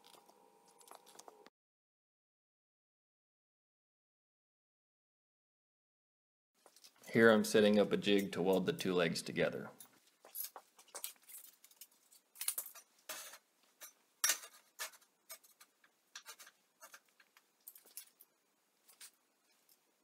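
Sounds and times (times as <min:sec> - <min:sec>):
steel parts clinking on metal table: 0:12.4 - 0:17.0.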